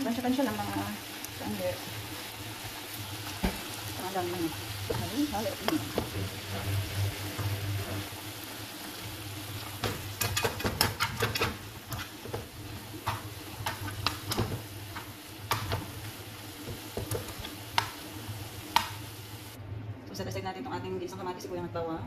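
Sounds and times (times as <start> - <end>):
vegetables sizzling in oil: 0.0 - 19.6
spatula scraping a pan: 9.6 - 15.6.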